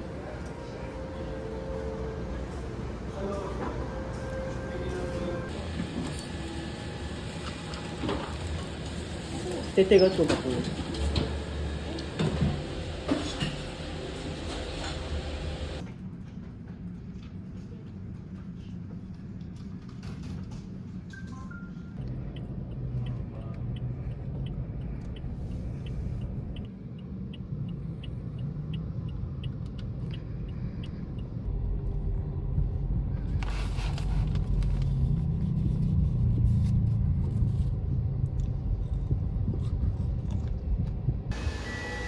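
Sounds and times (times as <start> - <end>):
car engine and road rumble: 21.9 - 41.9.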